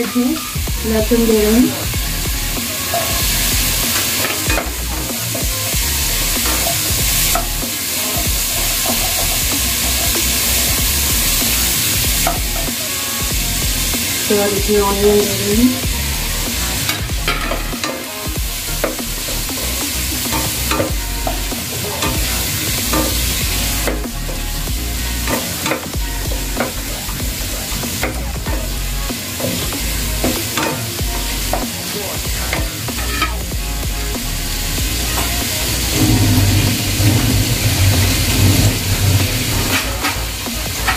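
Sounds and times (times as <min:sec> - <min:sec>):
onions sizzling in oil: 0:00.0 - 0:40.9
spatula scraping a pan: 0:29.2 - 0:33.5.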